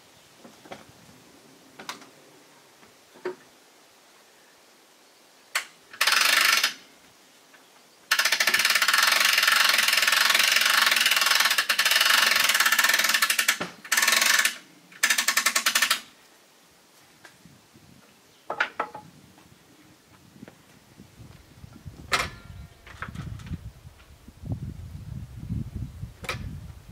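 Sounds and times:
log-turning gear rattling: 0:08.1 - 0:16.1.

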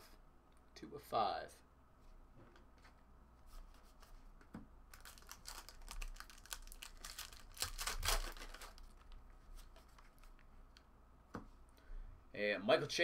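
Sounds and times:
foil wrapper crinkling and tearing: 0:04.9 - 0:09.2.

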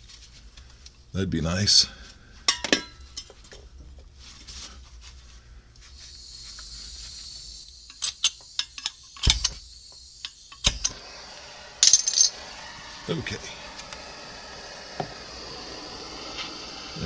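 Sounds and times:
gas torch flame hissing: 0:05.8 - 0:17.0.

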